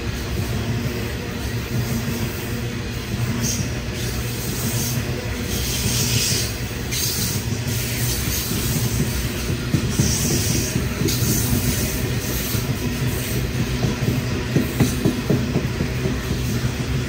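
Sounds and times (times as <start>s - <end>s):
freight wagons rumbling: 7.5s - 17.0s.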